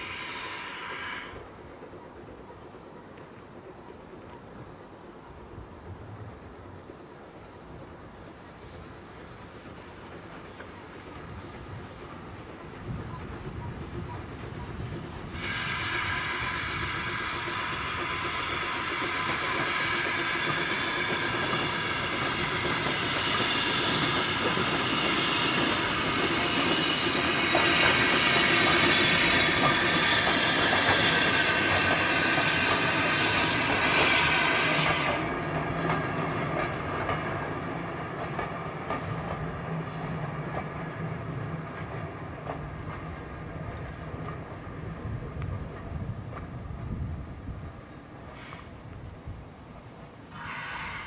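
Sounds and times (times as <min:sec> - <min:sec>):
loud steam hiss: 0:00.0 - 0:01.6, 0:07.5 - 0:46.1, 0:47.8 - 0:51.0
steam locomotive passing: 0:00.0 - 0:51.0
wheels clicking over rail joints: 0:29.5 - 0:47.2.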